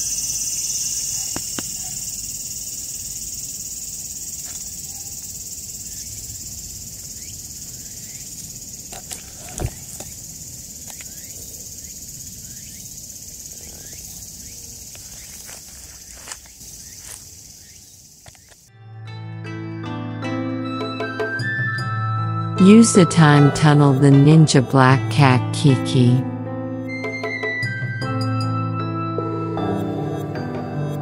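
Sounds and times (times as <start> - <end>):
high-pitched insect chorus: 0.0 - 18.7.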